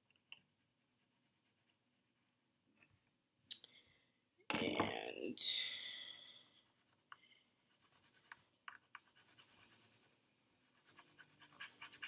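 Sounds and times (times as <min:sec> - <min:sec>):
crayon scratching on paper: 0:00.4 - 0:02.0, 0:06.6 - 0:12.0
quick scribbling: 0:07.6 - 0:12.0.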